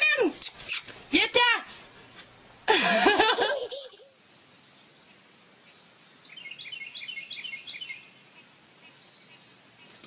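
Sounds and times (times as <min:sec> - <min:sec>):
faint hiss: 0:00.0 - 0:10.0
bird chirping: 0:03.9 - 0:10.0.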